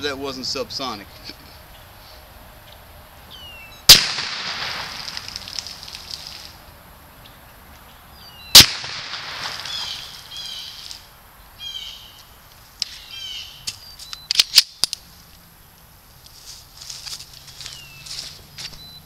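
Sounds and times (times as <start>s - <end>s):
birds chirping: 0.0s - 16.3s, 17.2s - 19.0s
suppressed pistol shot: 3.9s - 5.3s, 8.5s - 10.1s
sharp clicks: 13.7s - 15.0s.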